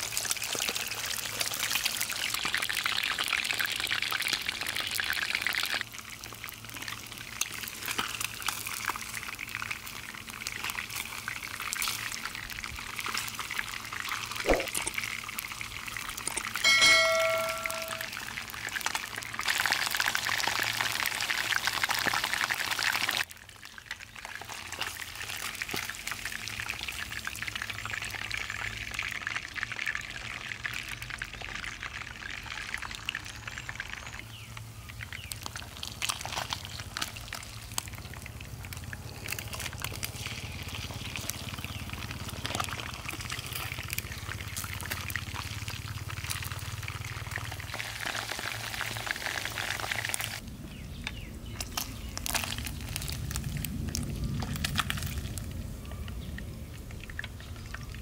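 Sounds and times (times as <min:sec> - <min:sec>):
crackles and pops of frying: 0:00.0 - 0:58.0
oil sizzling in a pan: 0:34.5 - 0:50.4.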